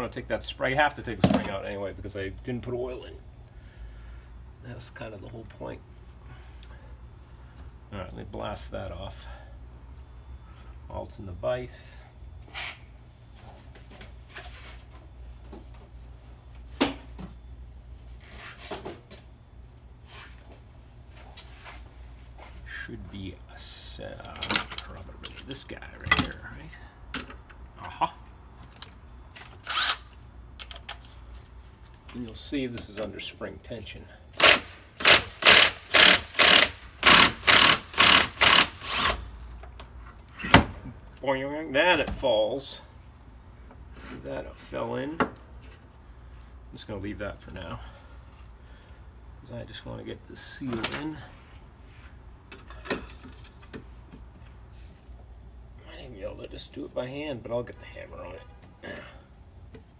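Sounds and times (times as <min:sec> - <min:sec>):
steady low hum: 0:00.0 - 0:59.9
impact wrench hammering: 0:34.4 - 0:39.2.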